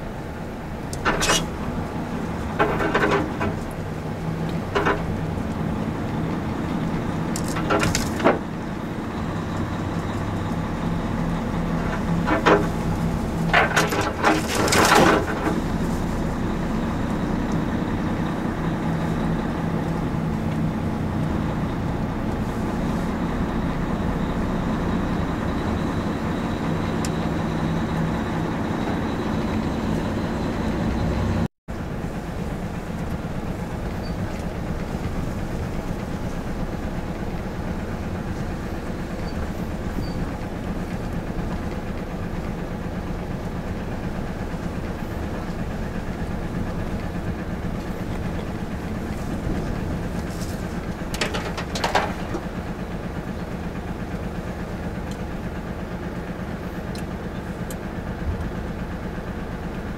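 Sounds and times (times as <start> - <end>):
truck diesel engine running: 0.0 - 59.9
branches scraping and snapping: 12.3 - 16.5, 49.1 - 52.4.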